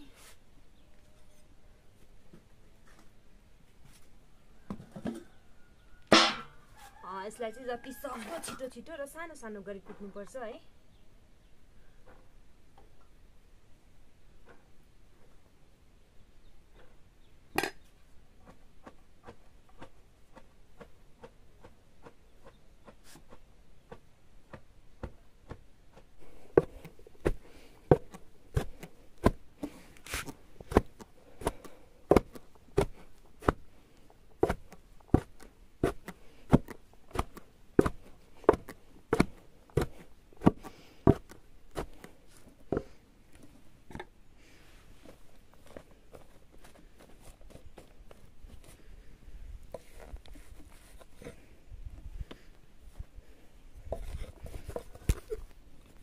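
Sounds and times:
pestle thudding in wooden mortar: 23.3s - 29.8s, 30.6s - 33.6s, 34.4s - 42.1s.

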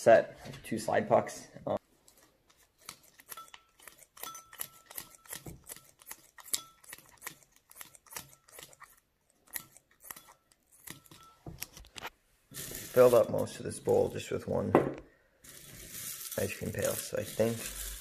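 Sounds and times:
scissors snipping plastic: 2.1s - 12.1s.

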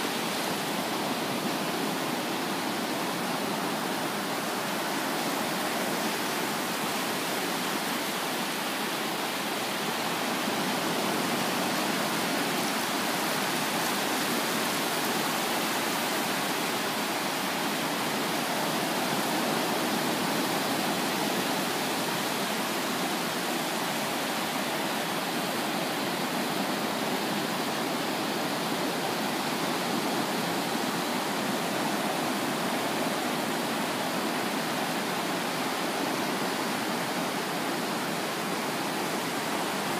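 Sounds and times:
waves washing over surf: 0.0s - 39.9s.

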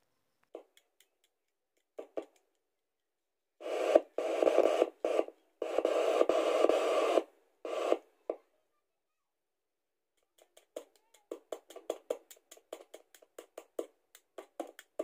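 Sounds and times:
radio static hiss: 3.6s - 8.2s.

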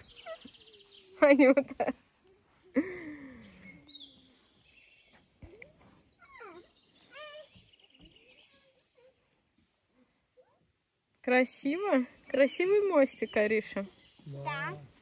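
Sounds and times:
faint birdsong: 0.0s - 15.0s.

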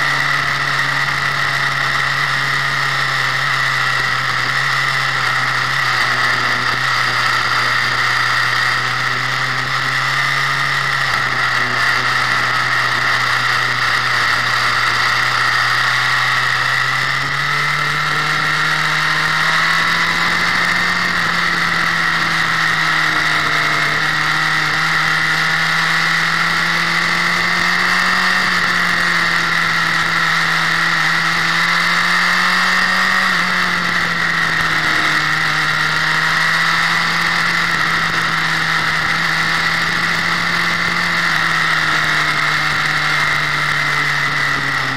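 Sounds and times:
motorcycle engine running: 0.0s - 44.9s.

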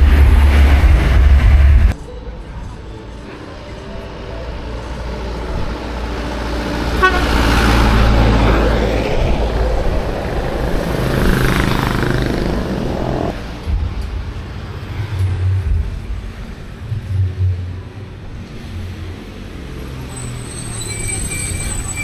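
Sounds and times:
road vehicle passing: 4.4s - 22.0s.

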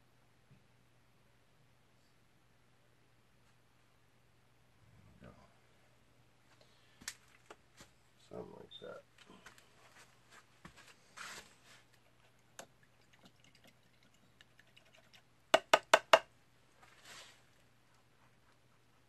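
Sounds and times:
soft rustling: 9.1s - 12.4s, 16.7s - 19.0s
sharp knocks: 15.6s - 16.3s.

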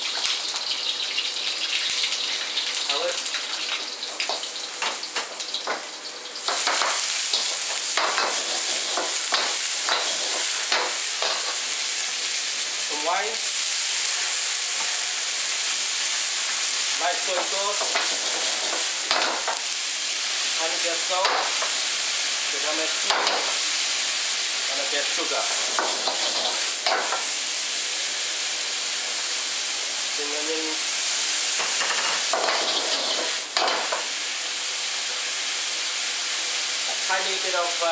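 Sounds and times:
vegetables sizzling in a wok: 0.0s - 37.9s
utensil scraping and clinking wok: 25.6s - 27.3s, 31.6s - 34.1s.

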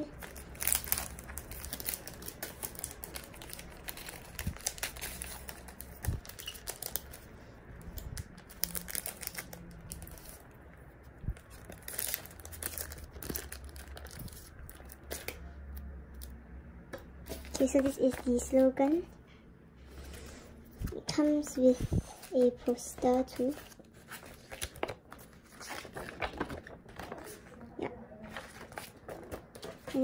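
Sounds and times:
plastic cellophane crinkling: 8.0s - 10.4s, 22.2s - 30.0s.

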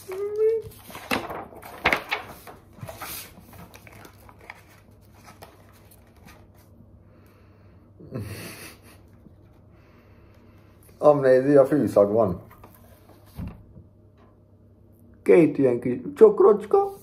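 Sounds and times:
paper packet rustling: 0.0s - 6.8s
nasal chuckle: 8.0s - 9.2s.

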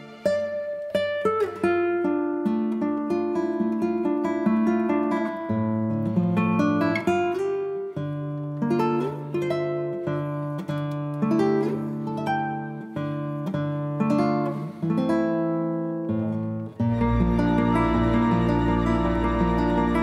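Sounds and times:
acoustic guitar chords: 0.0s - 20.0s.

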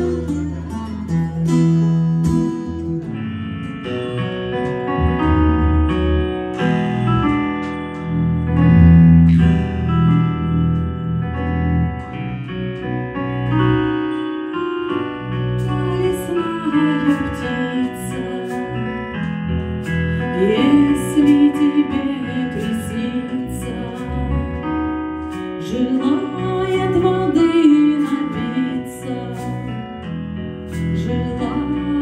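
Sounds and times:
piano accompaniment: 0.0s - 32.0s
woman singing: 15.6s - 18.8s, 20.2s - 24.7s, 25.6s - 29.8s, 31.0s - 32.0s.

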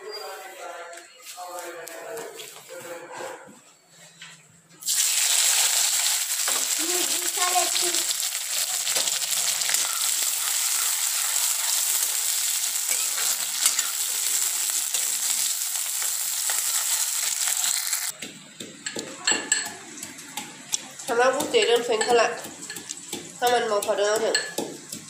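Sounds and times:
onions sizzling in hot oil: 4.8s - 18.1s, 20.9s - 25.0s.

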